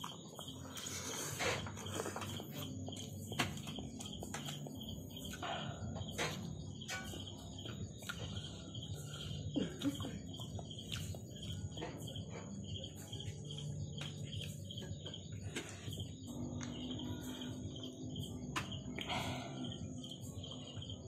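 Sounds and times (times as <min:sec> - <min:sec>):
chewing and slurping noodles: 0:00.0 - 0:05.3
insects chirping: 0:00.0 - 0:21.0.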